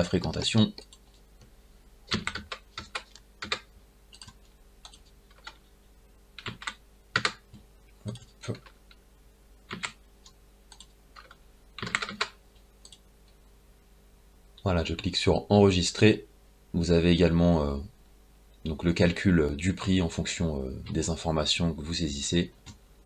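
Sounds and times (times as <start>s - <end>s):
computer keyboard typing: 2.1s - 5.6s, 6.4s - 8.8s, 9.7s - 13.0s.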